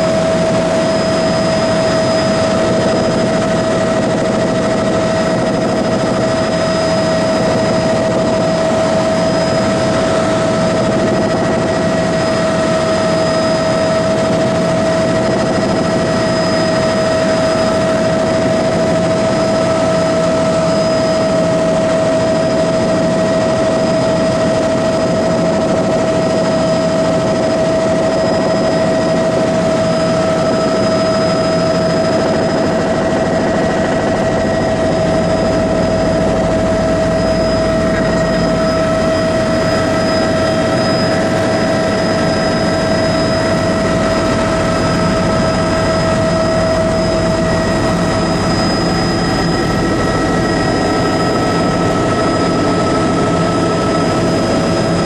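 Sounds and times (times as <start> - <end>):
aircraft engine droning: 0.0 - 55.0.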